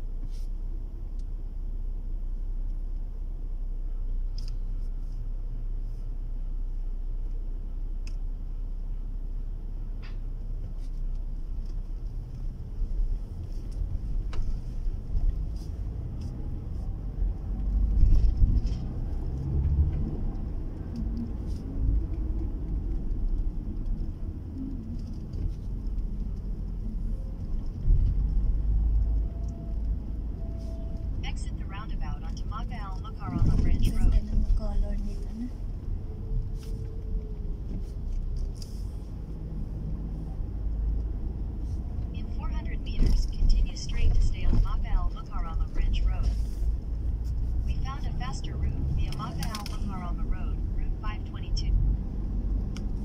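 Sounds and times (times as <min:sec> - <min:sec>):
car road and engine rumble: 0:00.0 - 0:53.0.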